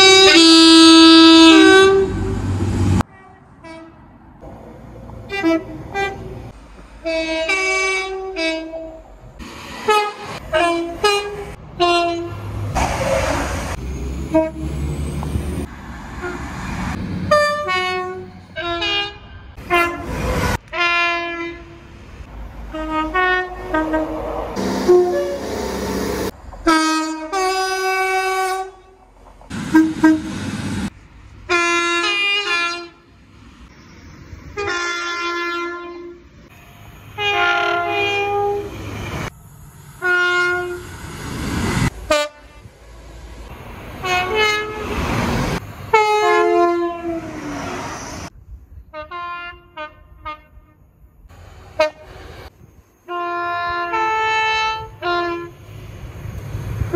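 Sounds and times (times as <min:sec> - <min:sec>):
two-tone train horn blasts: 0:00.0 - 0:04.0, 0:05.3 - 0:06.4, 0:07.0 - 0:09.1, 0:09.8 - 0:12.5, 0:14.2 - 0:14.8, 0:17.3 - 0:22.0, 0:22.7 - 0:25.6, 0:26.6 - 0:30.4, 0:31.5 - 0:33.1, 0:34.6 - 0:39.3, 0:40.0 - 0:40.9, 0:41.9 - 0:42.7, 0:44.0 - 0:45.1, 0:45.9 - 0:47.8, 0:48.9 - 0:50.9, 0:51.8 - 0:52.2, 0:53.1 - 0:55.6
train passing at speed: 0:00.0 - 0:48.9, 0:50.8 - 0:56.9.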